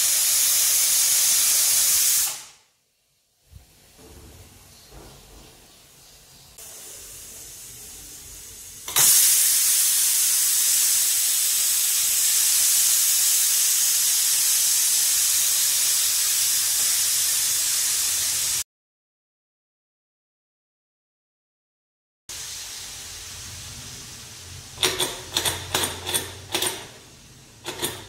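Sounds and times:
steam hissing from pressure cooker: 0:00.0 - 0:02.6, 0:06.6 - 0:18.6, 0:22.3 - 0:28.0.

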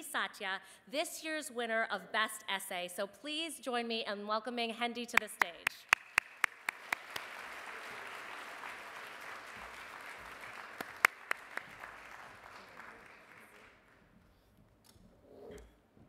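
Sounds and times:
audience applauding: 0:05.6 - 0:14.0
loud close claps: 0:05.6 - 0:14.0.

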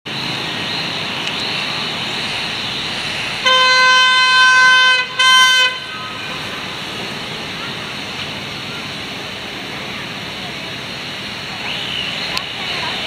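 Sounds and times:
steady hiss: 0:00.1 - 0:05.2
locomotive horn blast: 0:03.1 - 0:06.4.

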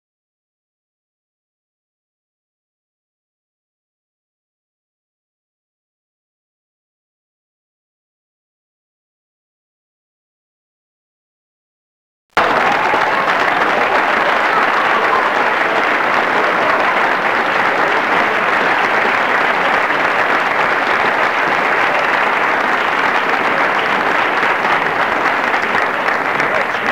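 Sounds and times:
crowd applause: 0:12.4 - 0:26.9.

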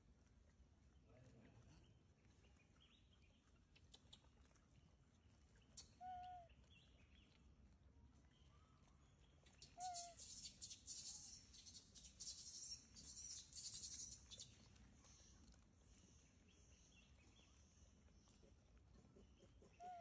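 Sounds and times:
monkey coo calls: 0:09.8 - 0:10.2, 0:18.4 - 0:20.0.

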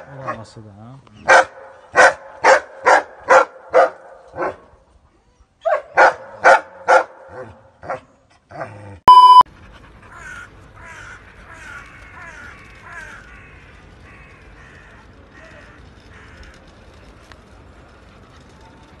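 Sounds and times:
loud electronic beep: 0:09.1 - 0:09.4.

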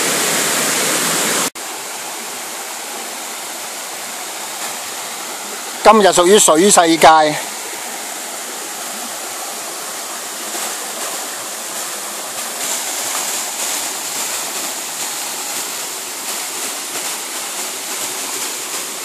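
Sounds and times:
stream rushing over rocks: 0:00.0 - 0:19.0.

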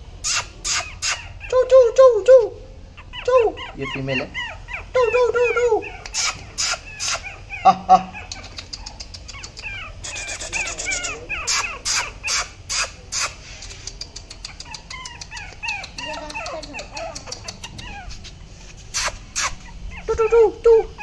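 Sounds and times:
birds chirping: 0:00.2 - 0:21.0
person making kissing sounds: 0:06.0 - 0:07.2, 0:08.3 - 0:18.3, 0:18.9 - 0:20.2.

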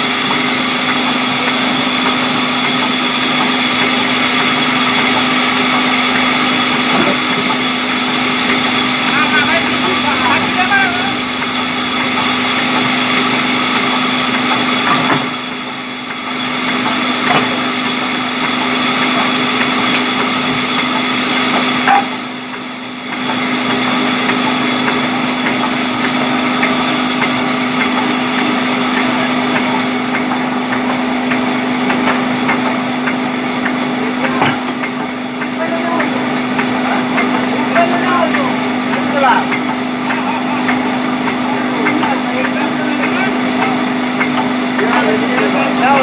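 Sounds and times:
band saw cutting wood: 0:00.2 - 0:22.4.

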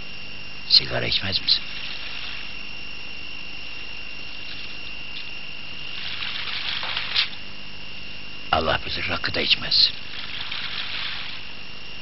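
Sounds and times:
faint high whine: 0:00.0 - 0:12.0
film soundtrack hiss: 0:00.0 - 0:12.0
scratchy noise: 0:01.4 - 0:02.8, 0:05.8 - 0:07.5, 0:09.9 - 0:11.6.

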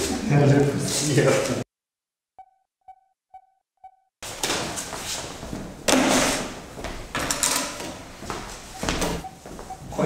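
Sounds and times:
short electronic beeps: 0:02.4 - 0:04.1
footsteps scuffing on tiled floor: 0:04.3 - 0:10.0.

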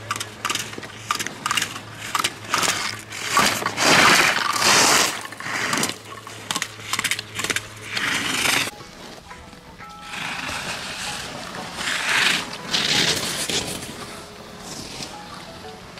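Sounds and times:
slalom poles clacking: 0:00.0 - 0:14.1
skis scraping on icy snow: 0:01.2 - 0:06.0, 0:07.5 - 0:09.2, 0:09.9 - 0:15.3.

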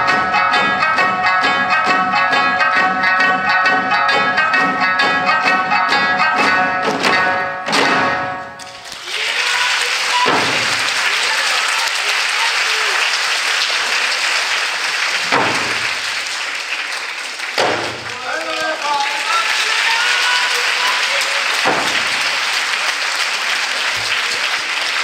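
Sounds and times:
folk music with drums: 0:00.0 - 0:08.9, 0:10.0 - 0:11.2, 0:15.2 - 0:16.2, 0:19.3 - 0:22.8
audience applause: 0:08.7 - 0:25.0
heavy thumps: 0:15.2 - 0:16.0, 0:21.6 - 0:22.3.

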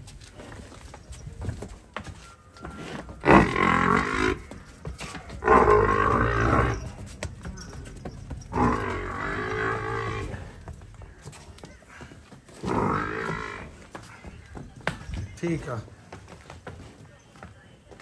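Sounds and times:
water buffalo lowing: 0:03.0 - 0:04.6, 0:05.3 - 0:07.1, 0:07.7 - 0:10.7, 0:12.6 - 0:13.9.

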